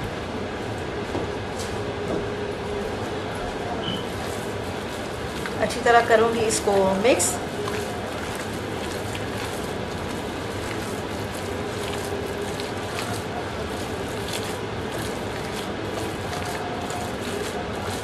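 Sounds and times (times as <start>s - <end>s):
wet squishes of kneading meat: 4.0s - 18.0s.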